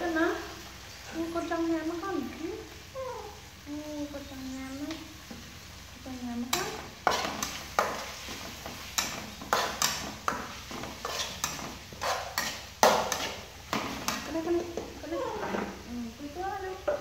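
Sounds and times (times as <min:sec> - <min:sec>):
spatula scraping metal wok: 0:06.4 - 0:15.9.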